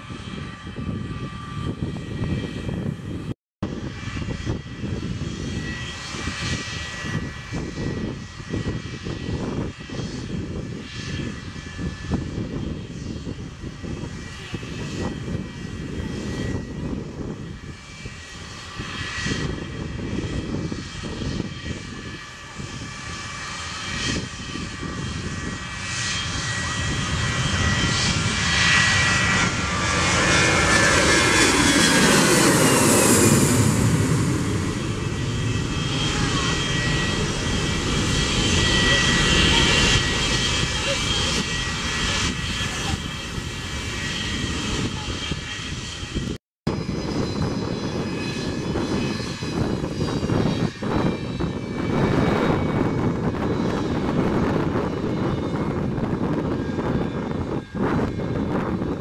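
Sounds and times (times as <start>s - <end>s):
gusty rumble: 0.0s - 59.0s
jet engine roar with whine: 0.0s - 59.0s.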